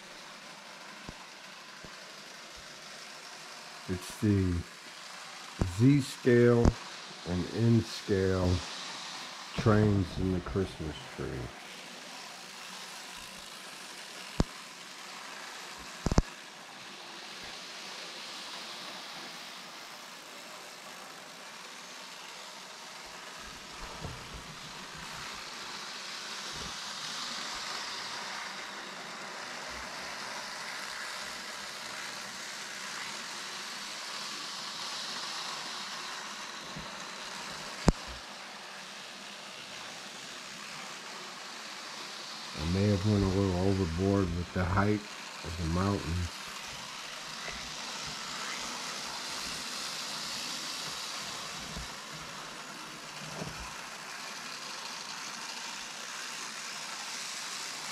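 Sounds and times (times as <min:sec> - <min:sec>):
model trains whirring: 0:00.0 - 0:57.9.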